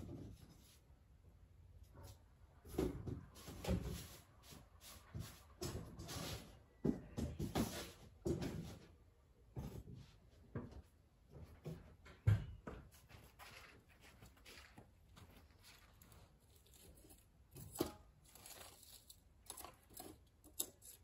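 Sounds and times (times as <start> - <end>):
charcoal crackling: 13.4 - 21.0.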